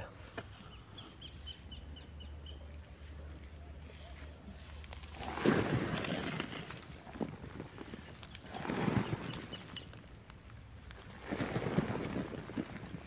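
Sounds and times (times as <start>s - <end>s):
rustling and scuffing in undergrowth: 3.8s - 10.2s.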